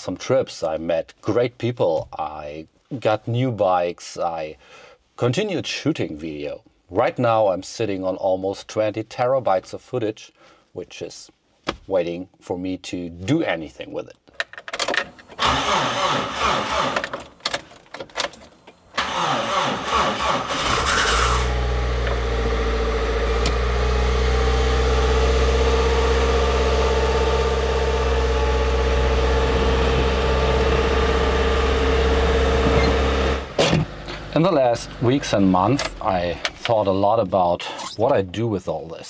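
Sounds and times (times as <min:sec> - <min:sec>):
van engine starting and idling: 0:14.9 - 0:37.0.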